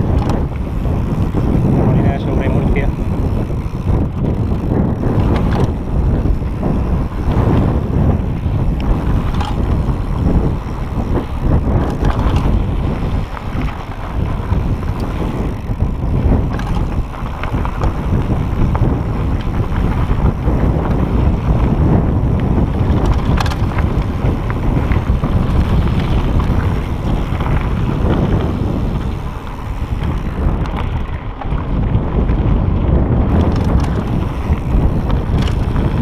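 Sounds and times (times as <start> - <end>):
tyres crunching on gravel: 0.0 - 32.4, 33.3 - 36.0
bike clicks and rattles: 0.0 - 36.0
wind noise on microphone: 0.0 - 36.0.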